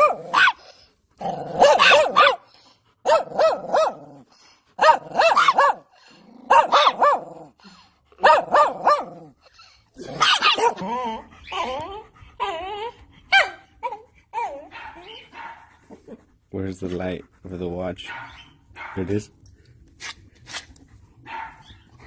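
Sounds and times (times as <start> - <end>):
small dog yapping: 4.8 - 5.8, 10.2 - 10.9.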